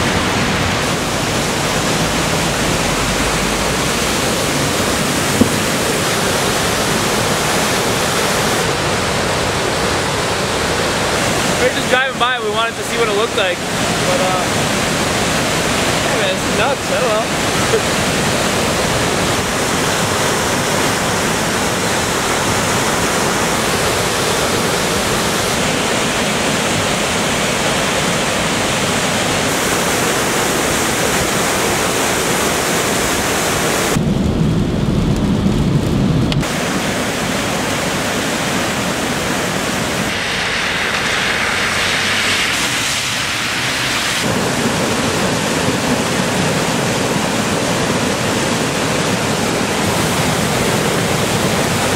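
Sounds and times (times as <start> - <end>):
water rushing over a dam: 0.0 - 34.0, 36.4 - 51.9
deep rumble: 34.0 - 36.5.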